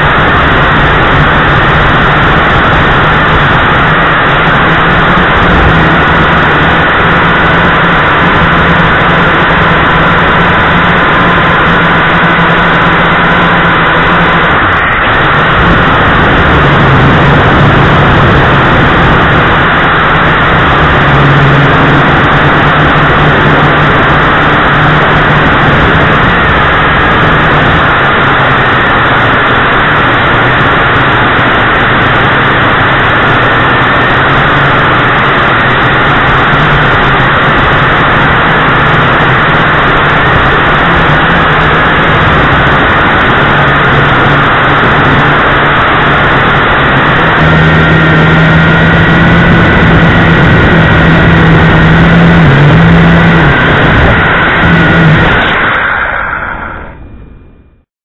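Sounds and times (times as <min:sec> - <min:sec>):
quadcopter propellers buzzing: 0:00.0 - 0:57.1.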